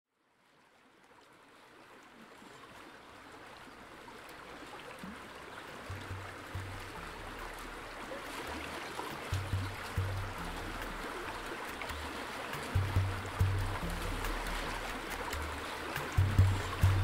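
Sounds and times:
low bass notes: 5.9 - 7.9, 9.3 - 17.0
wash of noise: 5.9 - 17.0.

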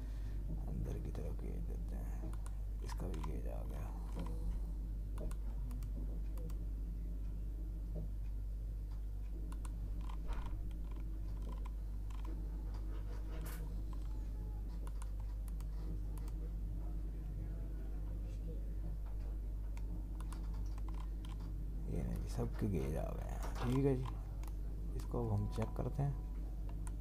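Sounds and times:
steady low hum: 0.0 - 27.0
computer mouse clicks: 2.2 - 3.4, 5.2 - 6.6, 8.9 - 12.9, 14.8 - 16.4, 19.7 - 21.5, 23.5 - 24.6
keyboard clicks: 2.2 - 3.4, 9.5 - 12.9, 14.8 - 16.4, 19.8 - 21.5, 23.2 - 24.6.

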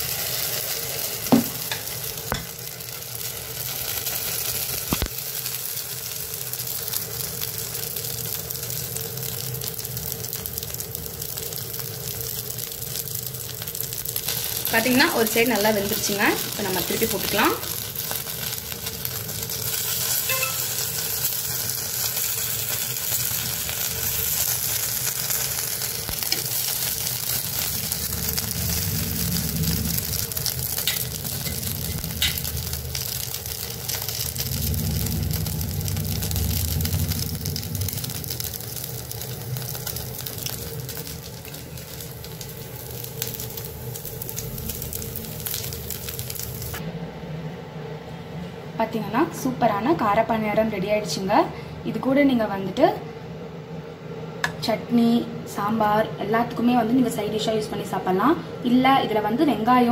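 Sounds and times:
batter sizzling in oiled pan: 0.0 - 46.8.

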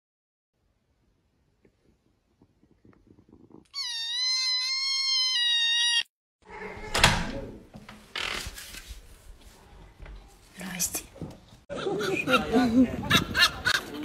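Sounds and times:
kitten meowing angrily: 3.8 - 6.1
rustling: 7.9 - 10.6.

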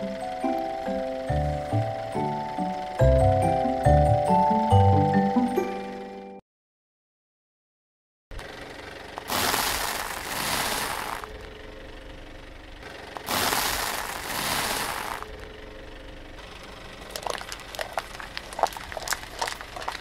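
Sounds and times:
sharp cracks and clicks: 9.2 - 11.3
tyre crushing dry noodles: 9.2 - 11.4, 13.2 - 15.3, 17.1 - 20.0.

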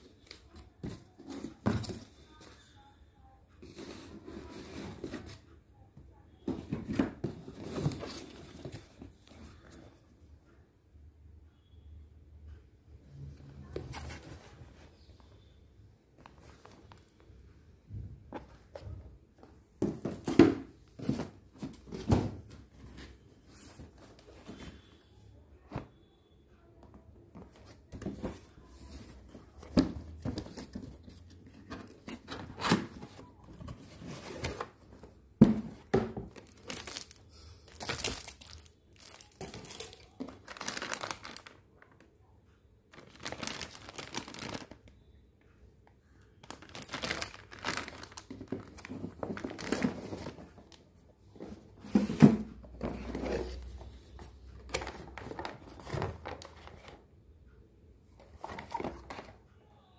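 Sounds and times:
cardboard packaging rustling: 27.5 - 41.6, 42.9 - 44.9, 46.4 - 50.8, 58.4 - 59.3
plastic bag crinkling: 36.4 - 42.0, 42.9 - 44.9, 46.4 - 50.3.

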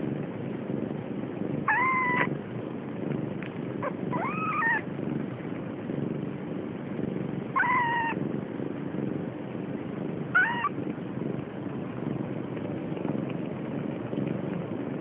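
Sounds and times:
steady low rumble: 0.0 - 15.0
kitten mewing: 1.6 - 2.3, 3.8 - 4.9, 7.5 - 8.3, 10.2 - 10.8.

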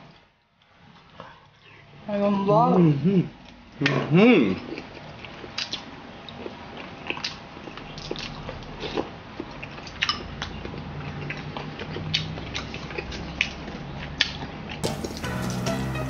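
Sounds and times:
wet chewing and lip smacks: 3.4 - 15.7.

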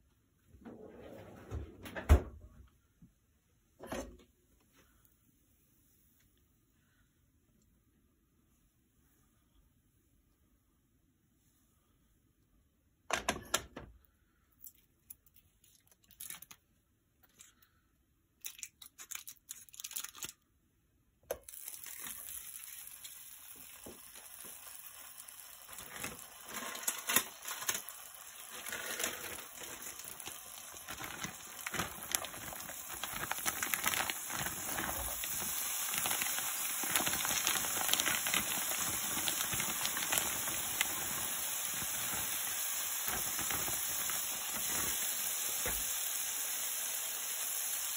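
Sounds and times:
frying pan sizzling and crackling: 21.4 - 47.9.

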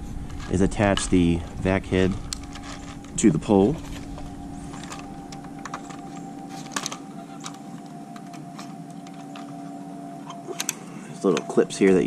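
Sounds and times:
steady hum: 0.0 - 12.0.

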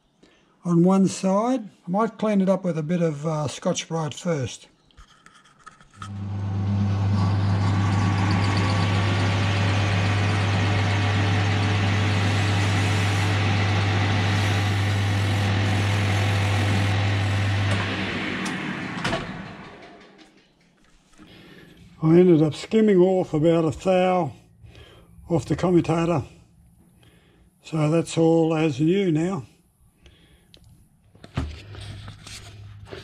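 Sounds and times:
lathe humming: 6.0 - 20.2
pad rubbing on spinning metal: 7.1 - 17.7.

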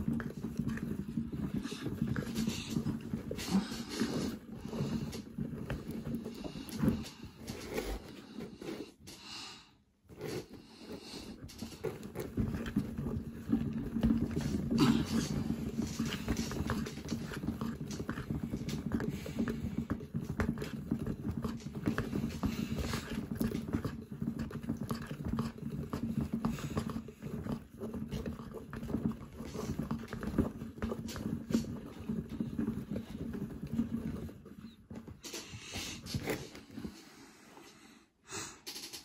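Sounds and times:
clicks and knocks from drum: 38.6 - 39.0.

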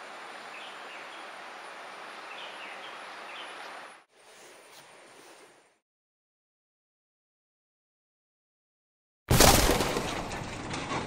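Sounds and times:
forest ambience hiss: 0.0 - 5.8
bird chirps: 2.2 - 3.8.

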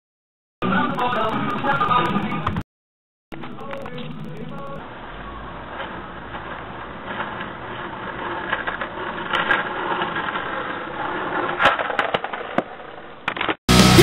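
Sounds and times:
caster wheels rolling on asphalt: 3.4 - 13.6.

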